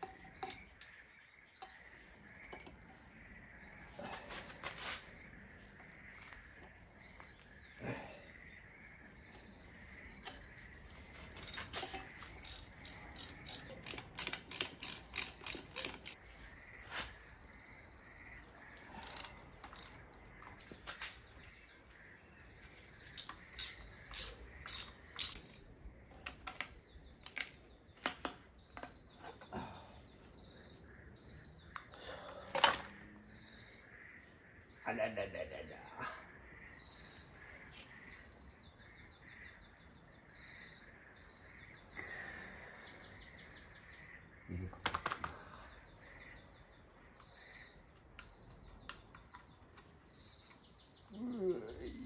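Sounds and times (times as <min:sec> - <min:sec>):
ratchet wrench clicking: 0:12.4 - 0:16.2, 0:19.0 - 0:20.0, 0:23.2 - 0:25.6.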